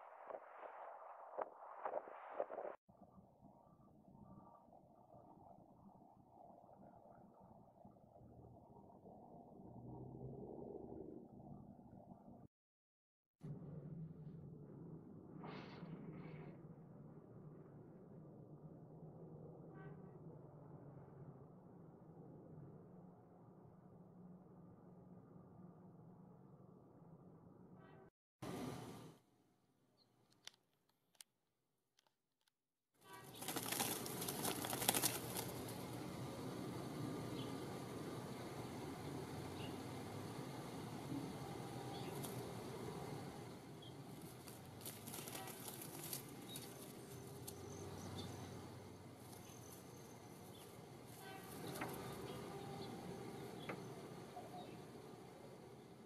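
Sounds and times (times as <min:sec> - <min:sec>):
bird wings fluttering against twigs: 0:33.0 - 0:36.0, 0:41.8 - 0:42.8, 0:43.8 - 0:48.5, 0:49.2 - 0:52.4.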